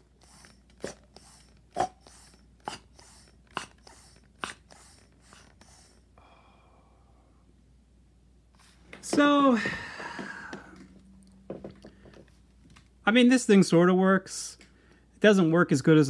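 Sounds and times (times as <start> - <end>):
toy pump clicks and air puffs: 0.0 - 6.1.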